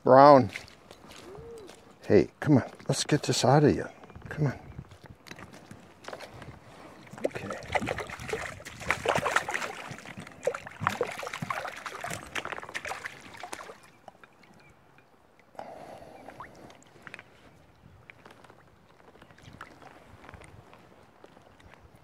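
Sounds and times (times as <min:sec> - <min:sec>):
water splashing and dripping: 0:07.0 - 0:15.5.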